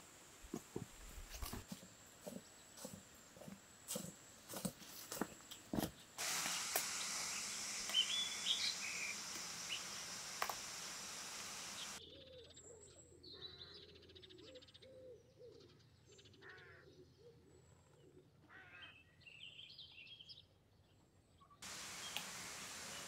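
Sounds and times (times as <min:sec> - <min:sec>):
steady outdoor hiss: 0:00.0 - 0:12.0, 0:21.6 - 0:23.0
low wavering bird calls: 0:07.0 - 0:15.8
bird chirps and trill: 0:07.3 - 0:10.0.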